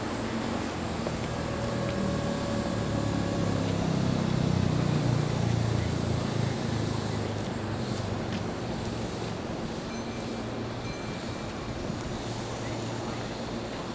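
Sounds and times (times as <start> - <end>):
electric train equipment humming: 0.0 - 5.6.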